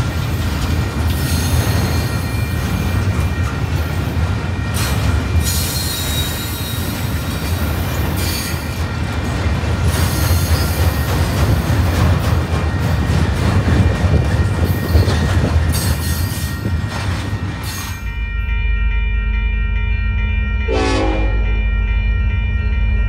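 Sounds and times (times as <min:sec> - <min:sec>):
train wheels rumbling on rails: 0:00.0 - 0:18.2.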